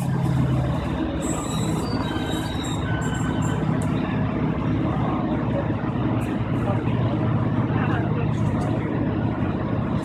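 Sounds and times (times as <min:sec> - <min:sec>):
high-pitched wheel squeal: 0:00.0 - 0:04.2
railcar diesel engine rumble: 0:00.0 - 0:10.0.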